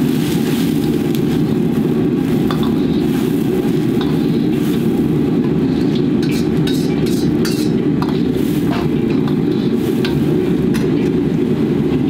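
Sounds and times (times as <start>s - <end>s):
broth boiling: 0.0s - 12.0s
gas burner roaring: 0.0s - 12.0s
metal ladle clinking against wok: 2.5s - 3.0s, 5.8s - 11.0s.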